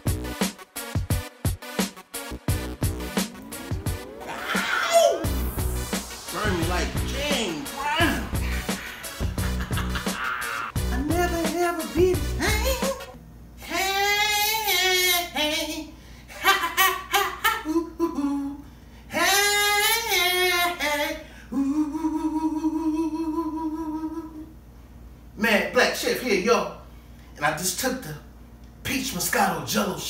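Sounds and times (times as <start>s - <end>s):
music with a beat: 0.0s - 4.3s, 5.2s - 13.2s
man singing wordless notes: 10.8s - 15.9s.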